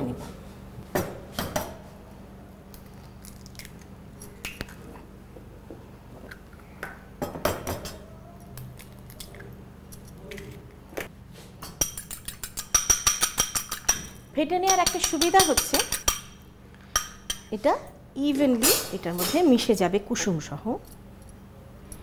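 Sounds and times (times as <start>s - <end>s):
kitchenware tapping a bowl: 11.6s - 16.4s.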